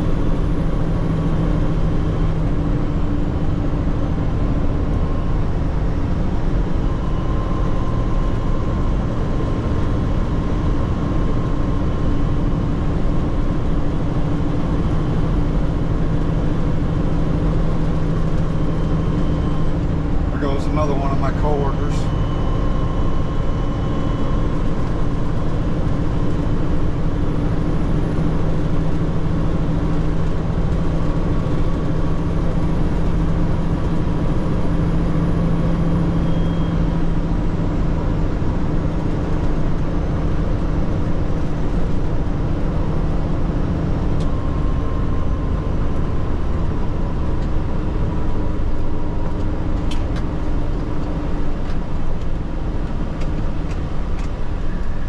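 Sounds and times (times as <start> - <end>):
truck engine and road noise: 0.0 - 55.0.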